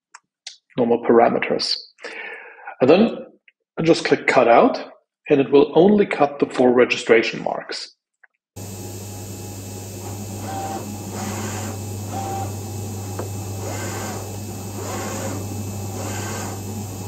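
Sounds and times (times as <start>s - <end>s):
cutting machine motor whirring: 8.6s - 17.0s
short motor tones: 8.6s - 17.0s.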